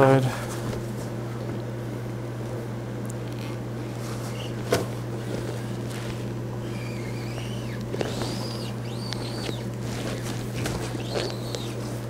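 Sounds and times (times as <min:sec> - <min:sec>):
steady low hum: 0:00.0 - 0:12.0
bird chirping: 0:06.7 - 0:09.7, 0:11.0 - 0:11.8.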